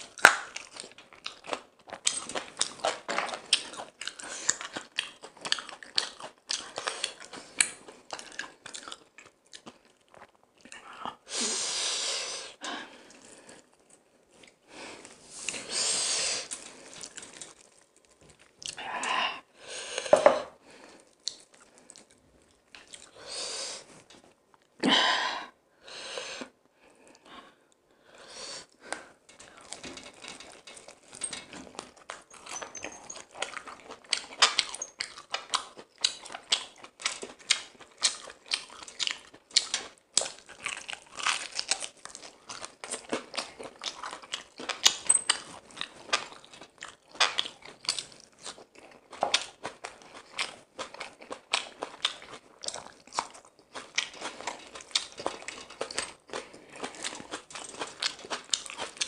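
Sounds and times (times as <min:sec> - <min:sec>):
chewing crisp fried chicken: 0:00.0 - 0:11.2, 0:16.4 - 0:19.0, 0:20.6 - 0:24.7, 0:28.6 - 0:59.0.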